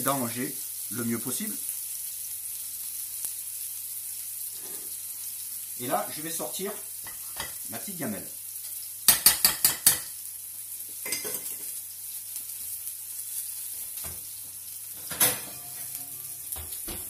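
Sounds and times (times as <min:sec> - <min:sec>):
tomatoes sizzling in a frying pan: 0:00.0 - 0:17.0
metal spoon knocking on saucepan: 0:09.1 - 0:10.1
oven door clunk: 0:15.0 - 0:15.9.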